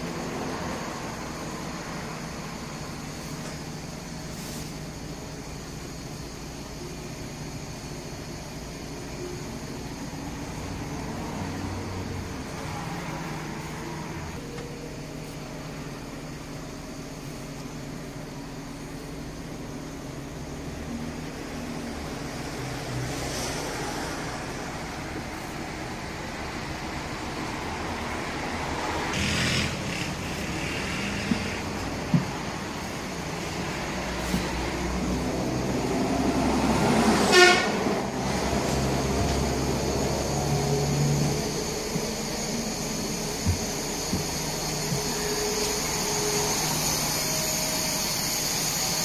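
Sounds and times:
diesel bus engine running: 0.0 - 49.0
short hissing bursts: 4.1 - 5.4.

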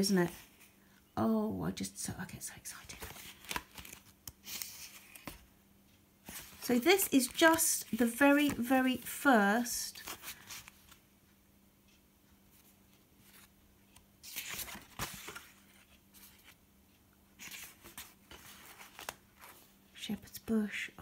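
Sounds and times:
faint steady hum: 0.0 - 21.0
postcards rustling and scraping: 2.7 - 5.4, 6.2 - 11.0, 12.6 - 16.6, 17.4 - 19.8.

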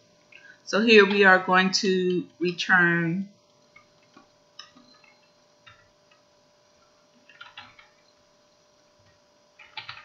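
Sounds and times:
faint steady hum: 0.0 - 10.0
computer keyboard keystrokes: 7.3 - 8.0, 9.6 - 10.0.

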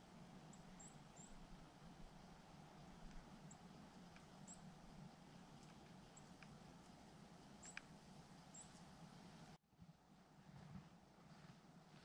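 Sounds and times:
faint steady hiss: 0.0 - 12.0
soft clicks: 7.6 - 7.9.

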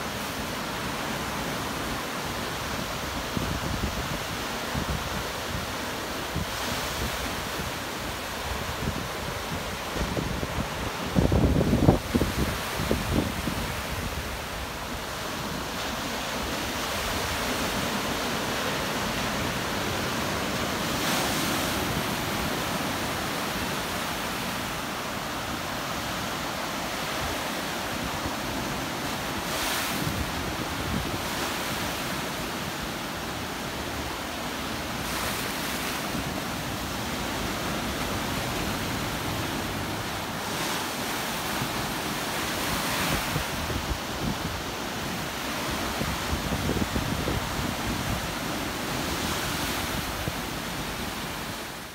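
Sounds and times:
small waves breaking on beach: 0.0 - 51.9
wind buffeting microphone: 6.3 - 15.6, 42.8 - 50.4.

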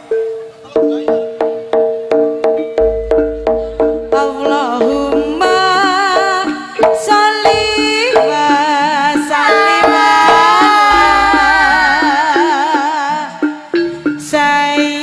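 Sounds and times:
melody with wavering held notes: 0.0 - 6.8, 10.8 - 13.3
drum strokes: 0.8 - 14.2.

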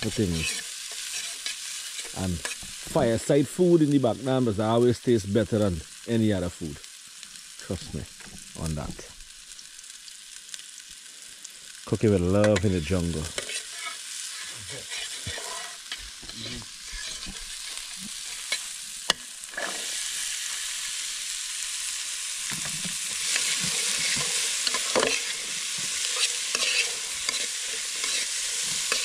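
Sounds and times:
food sizzling in a pot: 0.0 - 29.0
metal spoon scraping a pot: 0.1 - 2.7, 13.3 - 18.6, 23.2 - 29.0.

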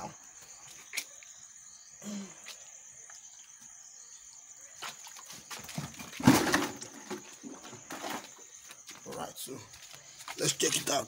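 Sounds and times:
water splashing and dripping: 4.6 - 7.4.

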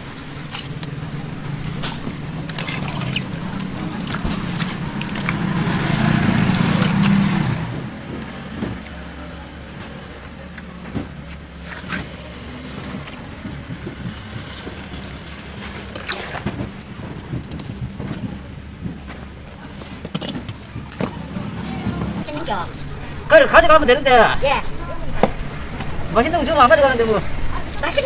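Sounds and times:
vehicle engine running: 0.0 - 19.5.

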